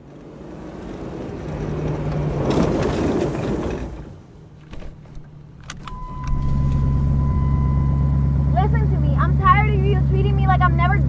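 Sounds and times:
car passing: 0.1 - 11.0
car engine starting and running: 4.4 - 11.0
sharp clicks: 4.6 - 7.2
steady high tone: 5.7 - 9.8.

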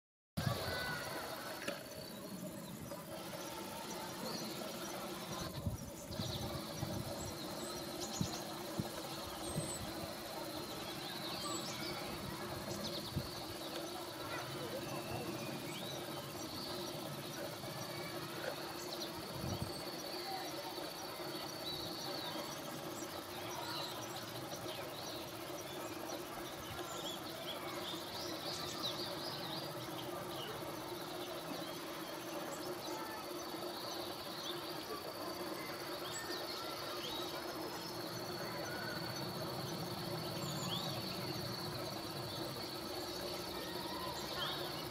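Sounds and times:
insects chirping: 0.4 - 44.9
steady high insect trill: 0.4 - 44.9.

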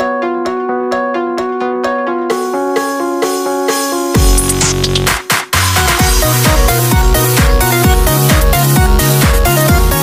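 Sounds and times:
held synth chords: 2.1 - 10.0
kick drum beat: 4.2 - 10.0.

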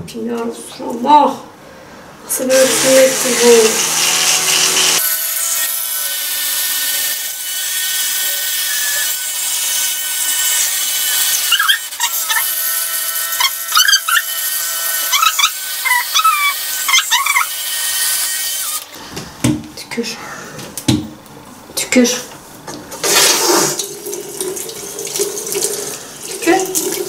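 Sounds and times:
small electric motor buzzing: 2.5 - 19.0.

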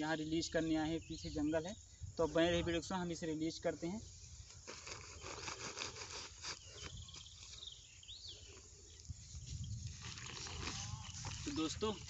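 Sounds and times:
plastic sack crinkling: 4.6 - 7.5, 9.9 - 12.0.

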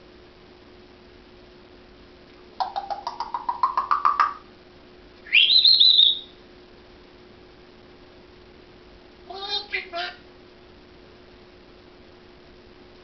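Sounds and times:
parrot clicking notes: 2.6 - 4.4
parrot whistle sweeping up: 5.3 - 6.3.

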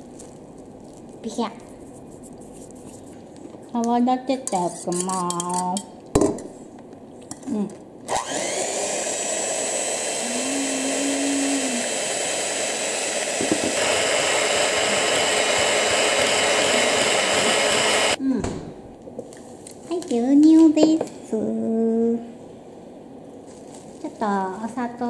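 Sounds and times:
electric hand mixer whipping: 8.1 - 18.2.

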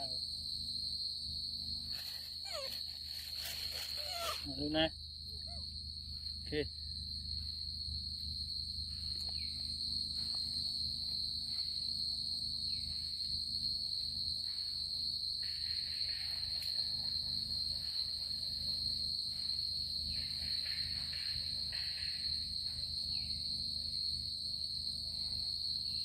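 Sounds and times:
night insects trilling: 0.0 - 26.0
rough hiss: 1.8 - 4.5.

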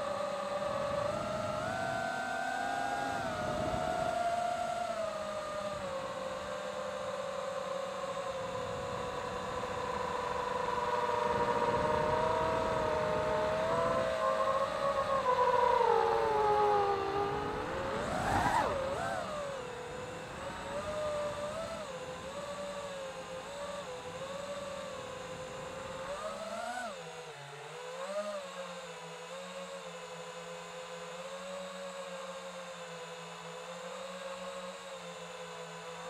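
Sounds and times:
quadcopter motors whining: 0.0 - 36.0.

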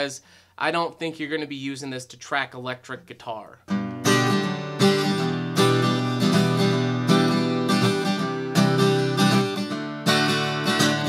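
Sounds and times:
acoustic guitar strumming: 3.7 - 11.0.

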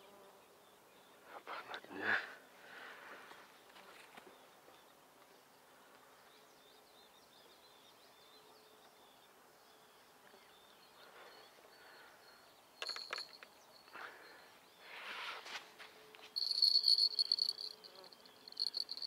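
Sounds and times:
faint outdoor ambience: 0.0 - 19.0
faint high chirps: 16.4 - 19.0.

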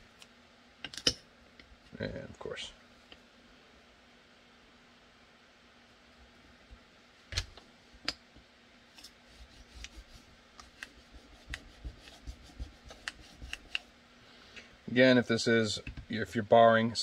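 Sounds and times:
tape clicking and rubbing: 9.0 - 13.9.

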